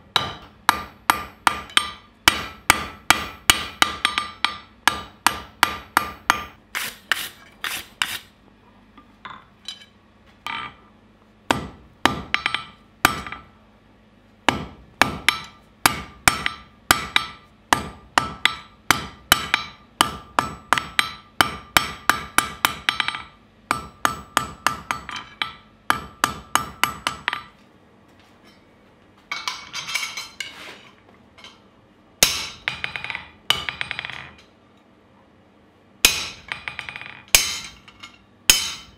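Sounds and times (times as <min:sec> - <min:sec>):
hammer ringing on anvil: 0:36.0 - 0:38.9.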